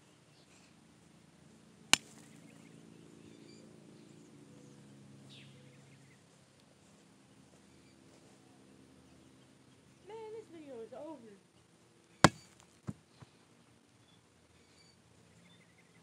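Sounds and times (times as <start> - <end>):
foot kicking a football: 12.3 - 13.0
faint bird chirps: 14.0 - 16.0.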